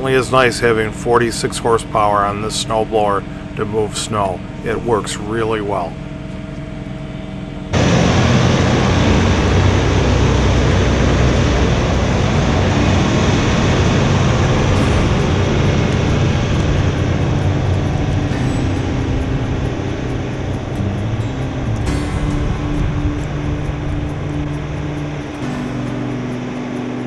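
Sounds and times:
low hum: 0.0 - 27.0
tractor diesel engine running: 0.0 - 27.0
loud rushing noise: 7.7 - 27.0.

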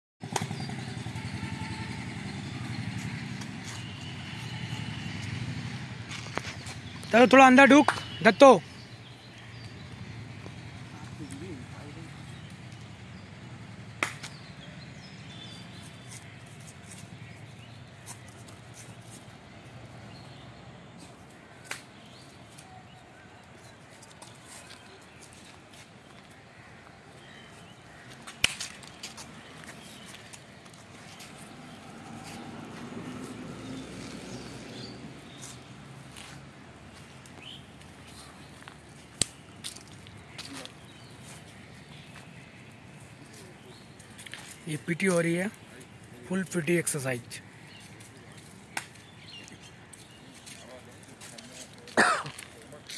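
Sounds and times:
hand clap: 7.8 - 8.1, 14.0 - 14.3
bird chirps: 7.8 - 13.4.

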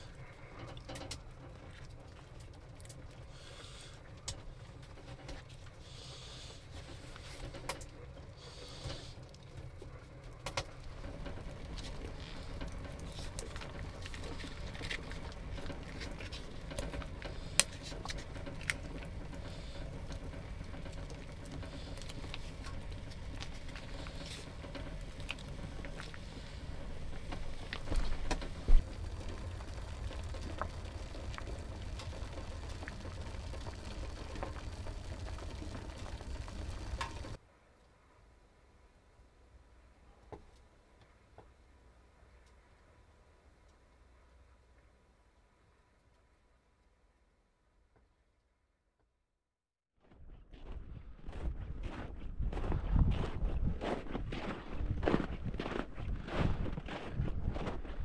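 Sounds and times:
steady low rumble: 0.0 - 37.4, 50.7 - 58.0.

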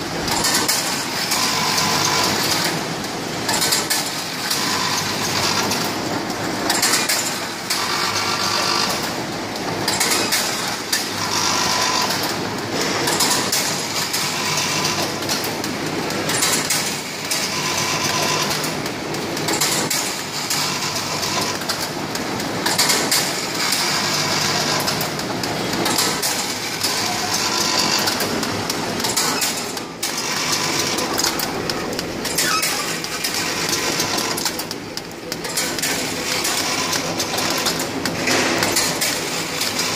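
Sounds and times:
packing machine clattering: 0.0 - 39.9.

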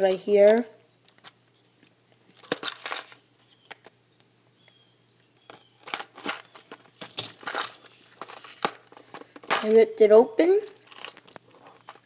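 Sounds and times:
plastic packaging crinkling: 5.5 - 9.7, 10.6 - 12.0.

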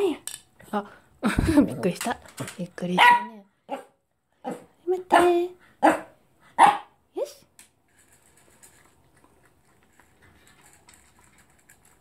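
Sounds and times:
kibble clicking against bowl: 7.6 - 12.0
dog crunching kibble: 7.8 - 12.0.

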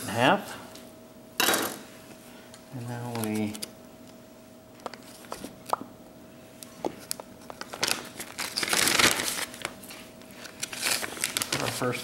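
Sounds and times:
plastic bag crinkling: 7.6 - 12.0.

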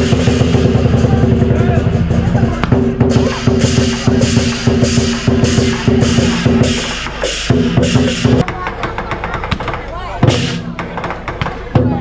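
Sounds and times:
cymbal crashes: 0.0 - 8.4
drums: 0.0 - 12.0.

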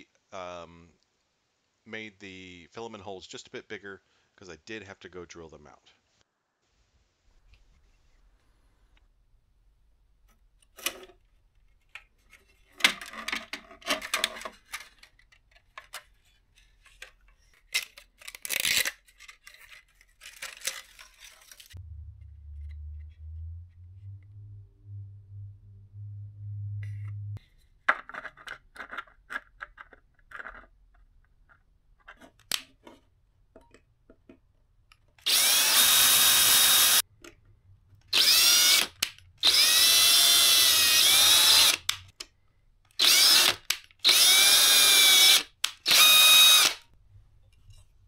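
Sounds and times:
plastic parts clicking: 10.6 - 21.8, 41.7 - 44.0
cordless drill boring plastic: 35.2 - 37.0, 38.1 - 42.0, 43.0 - 46.8.

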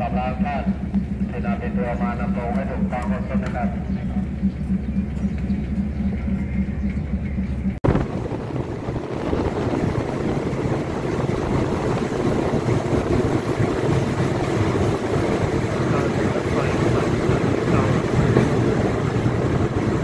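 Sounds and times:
train engine drone: 0.0 - 20.0
train running on rails: 0.0 - 20.0.

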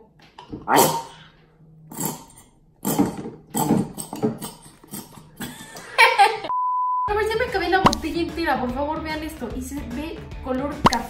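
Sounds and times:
test-tone beep: 6.5 - 7.2.

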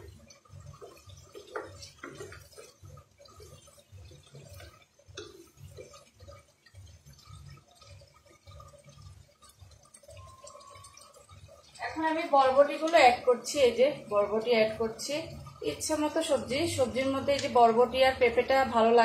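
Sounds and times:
spatula stirring sticky food: 0.0 - 10.1.

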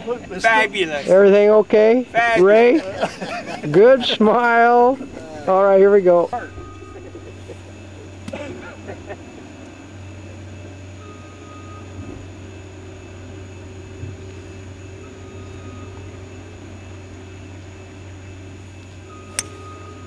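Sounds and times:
steady low hum: 0.0 - 20.0
golf club striking ball: 19.3 - 19.6.

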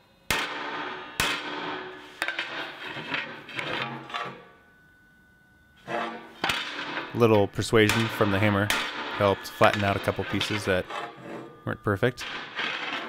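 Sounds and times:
metal plate clanking: 0.3 - 4.6, 5.8 - 13.0
hammer ringing blows on steel: 4.0 - 12.6.

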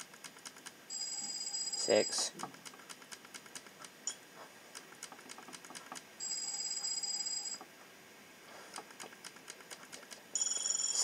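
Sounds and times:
light rapid clicking: 0.0 - 0.8, 2.4 - 4.0.

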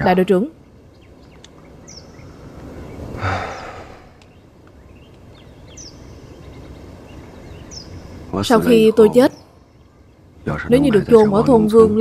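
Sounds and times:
outdoor hiss: 0.0 - 12.0
faint bird chirps: 0.6 - 11.3
man sighing: 3.2 - 4.2.

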